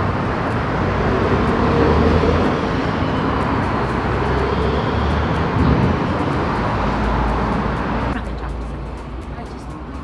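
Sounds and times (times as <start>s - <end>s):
city traffic noise: 0.0s - 10.0s
low rumble: 5.5s - 6.2s.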